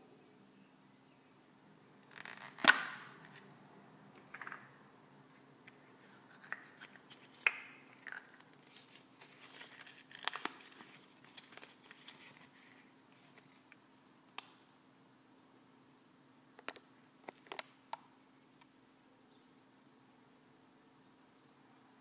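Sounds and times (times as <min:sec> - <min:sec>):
plastic capsule snapping open: 0:02.0 - 0:03.4
paper leaflet crinkling: 0:06.0 - 0:13.7.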